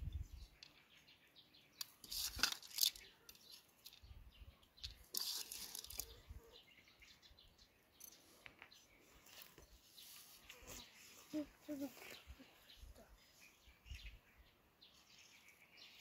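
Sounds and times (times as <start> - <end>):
faint rustles of berries: 8.1 - 14.1.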